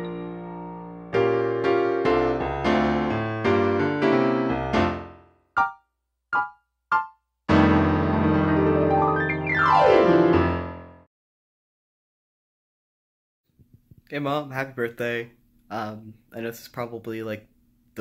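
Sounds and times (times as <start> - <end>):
piano-like keyboard music: 0.0 - 11.1.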